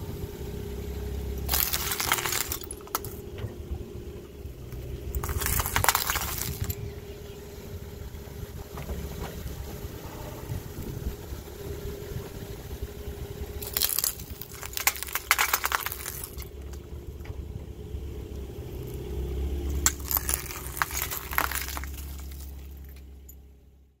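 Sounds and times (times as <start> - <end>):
car engine running: 0.0 - 24.0
glass crunching under car tyre: 1.4 - 3.2, 4.8 - 6.9, 13.6 - 16.9, 18.7 - 23.4.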